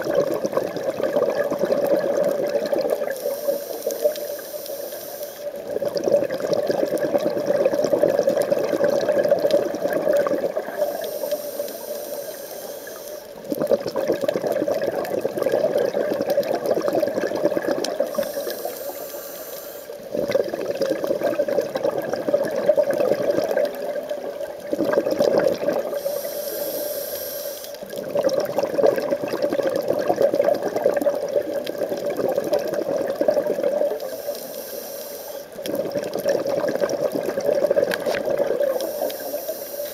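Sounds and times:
scuba regulator breathing underwater: 0:01.1 - 0:07.4, 0:08.9 - 0:13.4, 0:14.0 - 0:23.8, 0:24.8 - 0:28.4, 0:32.9 - 0:39.9.

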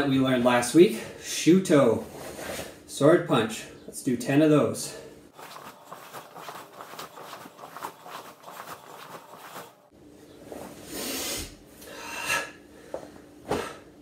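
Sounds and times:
fabric rustling and swishing: 0:05.3 - 0:09.9.

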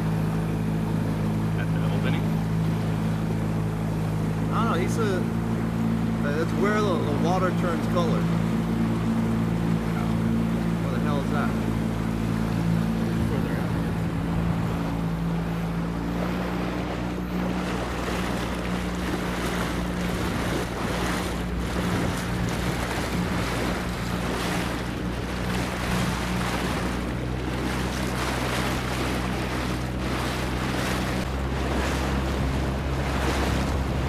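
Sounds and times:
boat motor running: 0:00.0 - 0:34.0
water rushing along hull: 0:00.0 - 0:34.0
wind buffeting microphone: 0:08.2 - 0:34.0.

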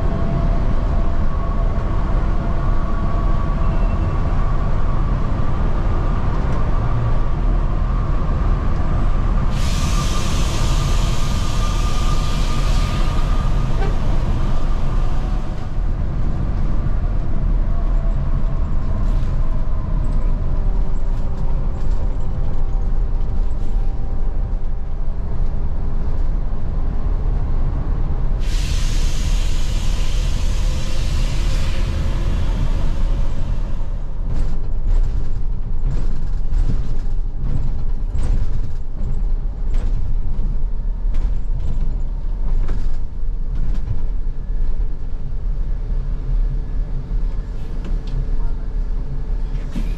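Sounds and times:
engine and road rumble: 0:00.0 - 0:49.9
hiss bursts: 0:09.5 - 0:14.6, 0:28.4 - 0:33.6.

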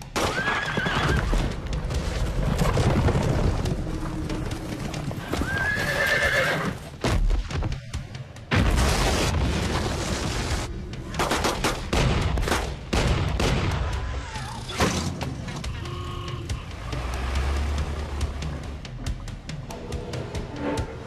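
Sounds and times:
hooves clattering: 0:00.0 - 0:08.1
horse whinnying: 0:00.2 - 0:01.3, 0:05.2 - 0:06.8.

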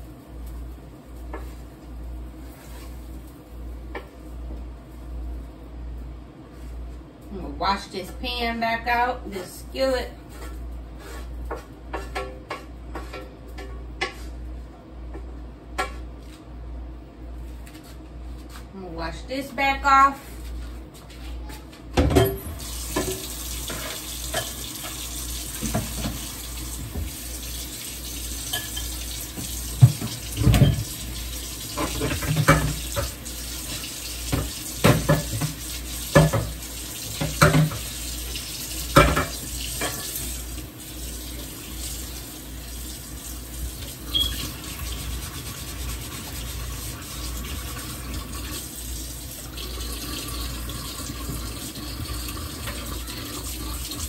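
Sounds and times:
tap water running into sink: 0:22.6 - 0:54.0
pan clattering against sink: 0:28.5 - 0:31.0, 0:31.7 - 0:33.2, 0:34.3 - 0:37.9.

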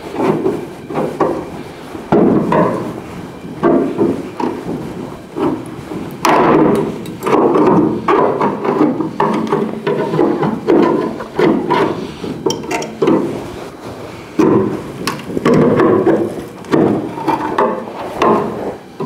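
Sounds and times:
hammer blows on sheet metal: 0:00.0 - 0:13.6.

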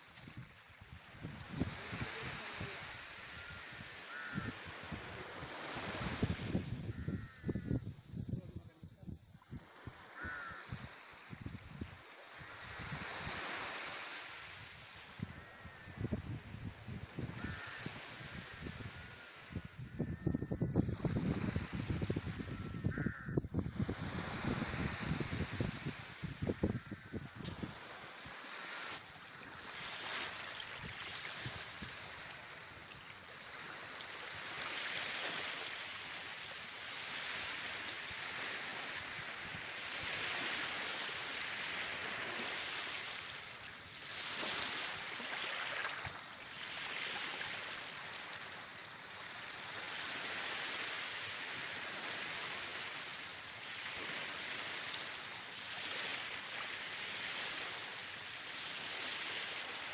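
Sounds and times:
waves breaking on a beach: 0:00.0 - 0:59.9.

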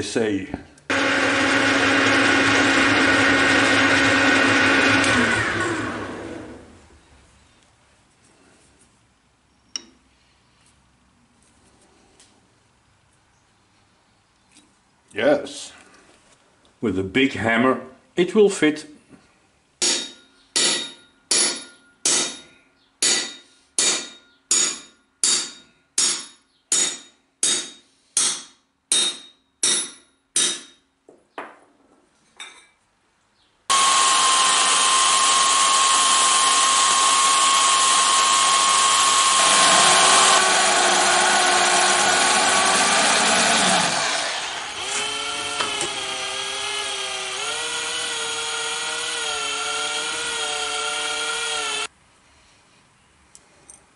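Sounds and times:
cordless drill running: 0:00.9 - 0:06.7, 0:33.7 - 0:51.9
corded electric drill whining: 0:00.9 - 0:06.8, 0:33.7 - 0:51.9
hammer striking metal: 0:19.8 - 0:30.8.

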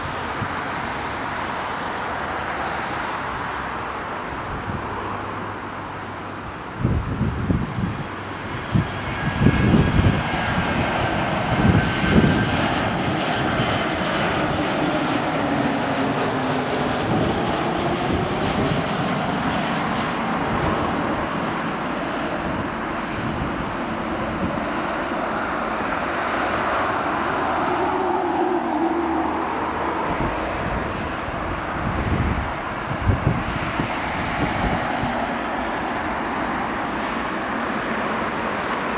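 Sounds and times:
jet engine roar with falling whine: 0:00.0 - 0:38.9.

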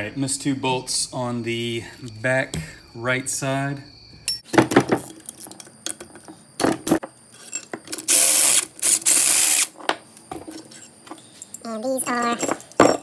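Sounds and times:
power ratchet spinning bolts: 0:08.0 - 0:09.7.

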